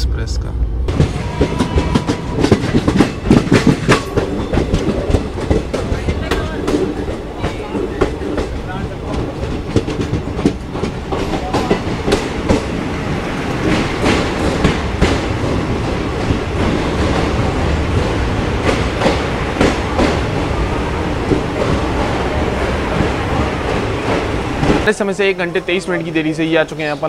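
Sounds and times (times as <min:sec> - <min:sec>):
train rumbling: 0:00.0 - 0:27.0
wheel clacks over rail joints: 0:00.9 - 0:12.8.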